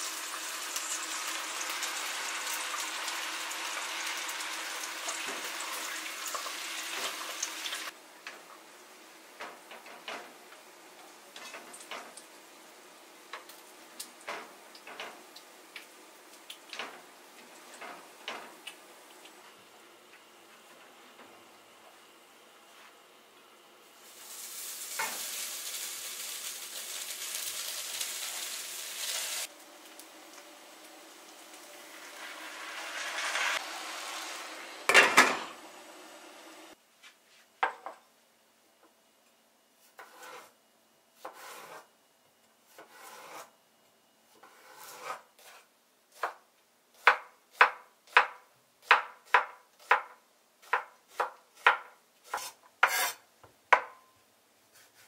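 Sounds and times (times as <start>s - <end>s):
rice sliding with rustling hiss: 24.0s - 34.9s
knife chopping on cutting board: 40.0s - 40.5s, 47.0s - 53.9s.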